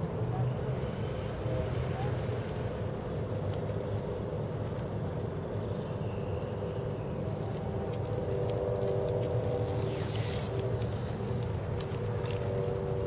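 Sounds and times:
distant road traffic rumble: 0:00.0 - 0:13.0
faint hum: 0:00.0 - 0:13.0.

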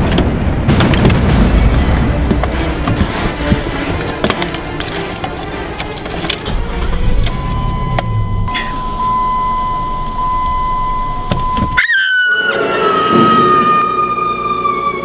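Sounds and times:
car keys jangling: 0:04.2 - 0:09.2
high electronic tone: 0:07.4 - 0:11.8.

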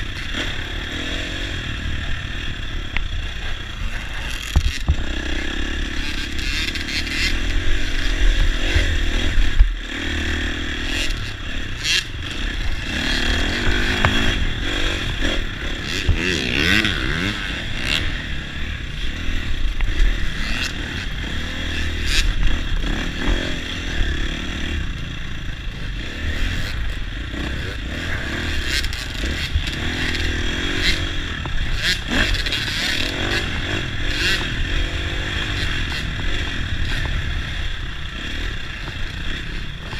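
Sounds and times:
dirt bike engine revving: 0:00.0 - 0:39.9
bike knocks and rattles: 0:04.4 - 0:05.1.

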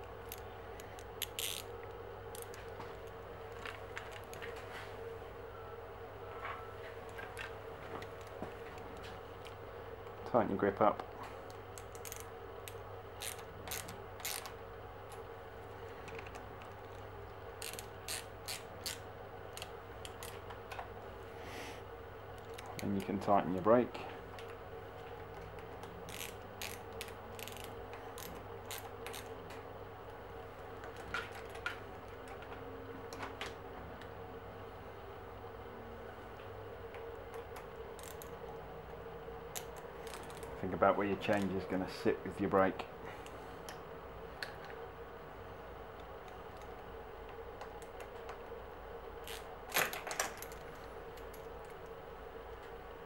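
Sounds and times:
faint steady hum: 0:00.0 - 0:53.0
ratchet driver clicking: 0:01.0 - 0:01.7.

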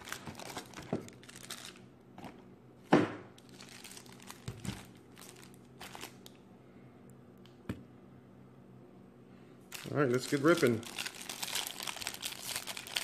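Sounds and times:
foil packs crinkling: 0:00.0 - 0:01.8, 0:03.4 - 0:06.3, 0:09.7 - 0:13.0
packs knocking on table: 0:02.2 - 0:03.3.

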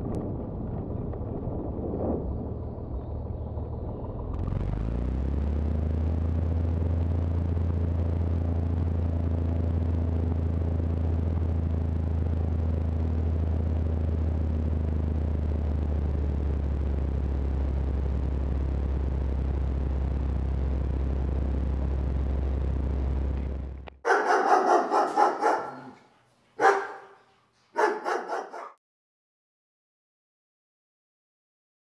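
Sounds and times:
plane engine drone from cabin: 0:00.0 - 0:25.9
dog barking: 0:24.1 - 0:28.8.

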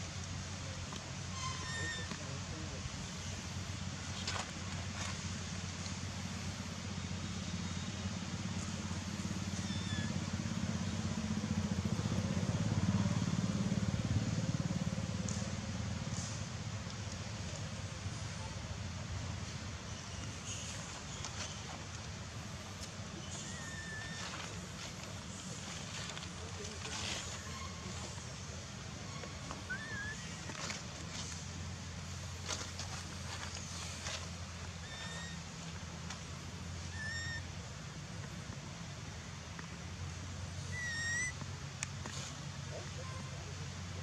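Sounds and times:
low outdoor hum: 0:00.0 - 0:44.0
vehicle engine rumbling: 0:00.0 - 0:44.0
soft rustles and clicks: 0:30.3 - 0:34.8
faint short whistle: 0:40.7 - 0:41.4.

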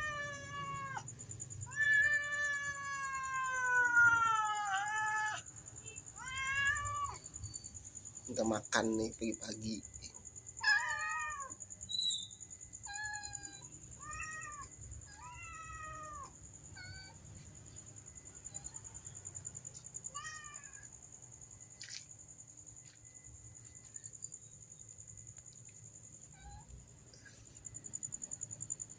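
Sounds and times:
cats meowing: 0:00.0 - 0:05.5, 0:06.2 - 0:07.3, 0:10.6 - 0:11.6, 0:12.8 - 0:17.5, 0:19.7 - 0:20.9, 0:26.2 - 0:26.8.

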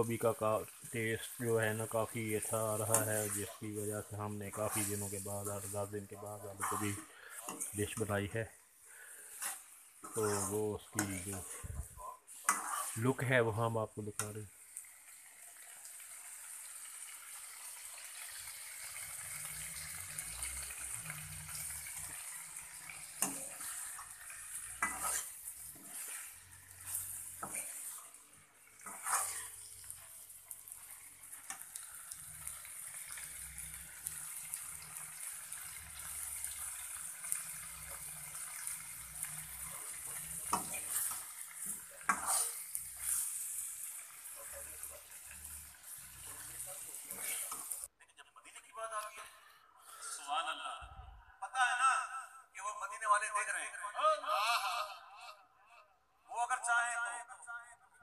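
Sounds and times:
high sizzle: 0:00.0 - 0:47.9
metal spoon scraping a pan: 0:00.8 - 0:08.3, 0:08.9 - 0:13.3, 0:18.2 - 0:47.9.

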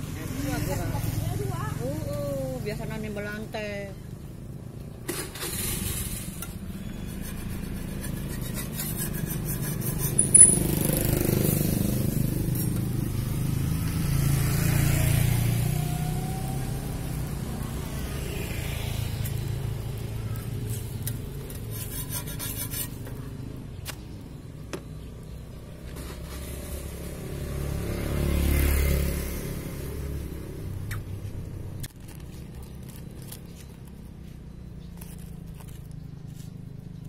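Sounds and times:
roadside traffic: 0:00.0 - 0:37.0
metal spatula scraping griddle: 0:05.1 - 0:10.9, 0:20.7 - 0:23.2.

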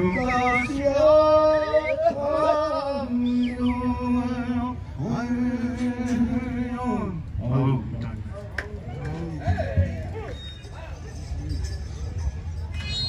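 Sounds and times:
man singing: 0:00.0 - 0:07.9.

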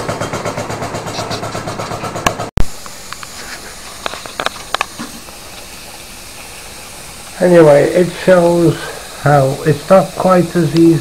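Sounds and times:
steam engine exhaust beats: 0:00.0 - 0:11.0
steam hissing: 0:02.6 - 0:11.0.

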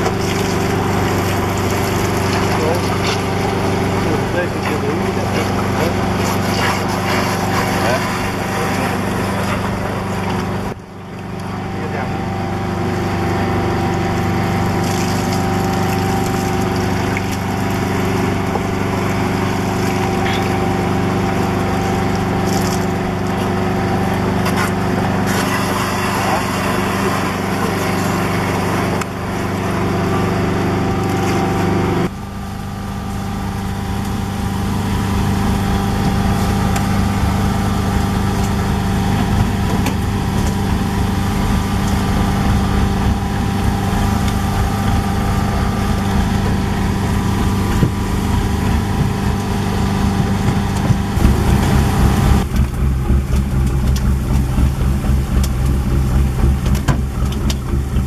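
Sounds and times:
water rushing and splashing: 0:00.0 - 0:32.1, 0:32.7 - 0:58.0
boat engine droning: 0:00.0 - 0:58.0.

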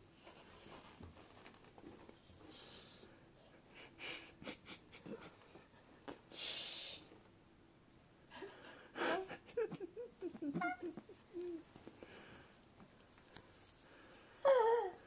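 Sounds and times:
soft breathing: 0:02.1 - 0:04.4, 0:11.3 - 0:15.0.

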